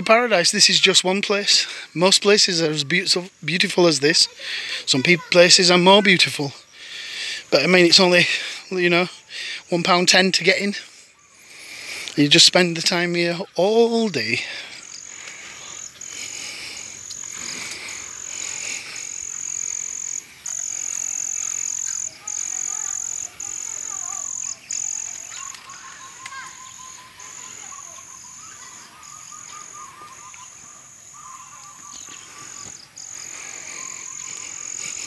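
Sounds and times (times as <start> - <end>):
insects trilling: 0.0 - 35.0
rapid low repeated calls: 13.0 - 35.0.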